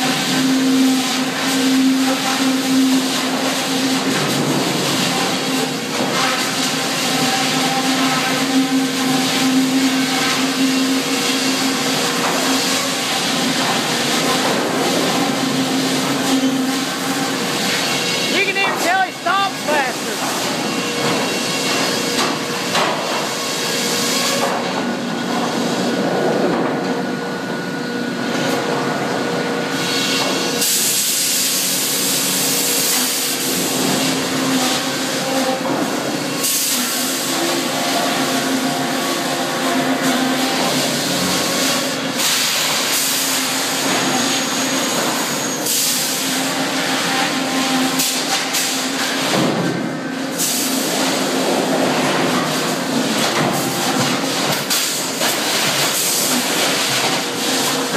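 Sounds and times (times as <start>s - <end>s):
sawmill machinery running: 0.0s - 57.9s.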